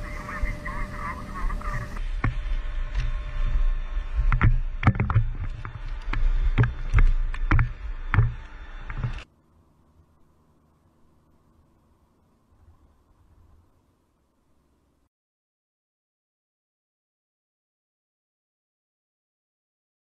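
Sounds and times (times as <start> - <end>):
microphone handling rumble: 0.4 - 9.2
sharp knocks and clatter of gear: 4.3 - 9.2.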